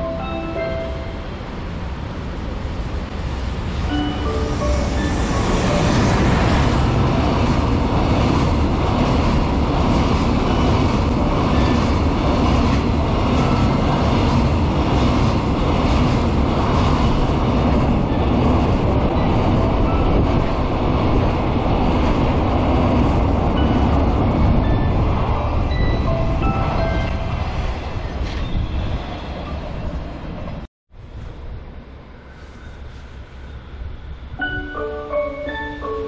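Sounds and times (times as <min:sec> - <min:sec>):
freight train wheels rumbling: 0:00.0 - 0:36.0
wheels clacking on rails: 0:03.3 - 0:30.6.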